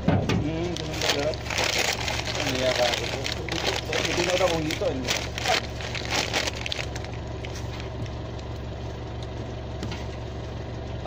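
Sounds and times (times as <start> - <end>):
low hum: 0.0 - 11.0
crackling and rustling: 0.5 - 8.6.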